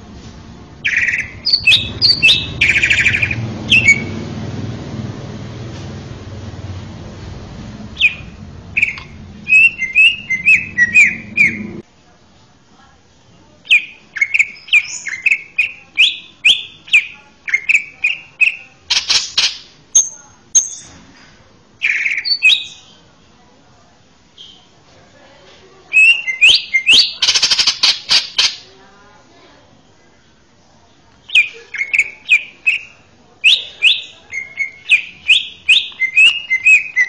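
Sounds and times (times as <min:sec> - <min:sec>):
low hum: 0:00.0 - 0:11.8
bird chirping song: 0:00.8 - 0:04.3, 0:07.9 - 0:11.8, 0:13.7 - 0:21.0, 0:21.8 - 0:23.0, 0:31.3 - 0:37.0.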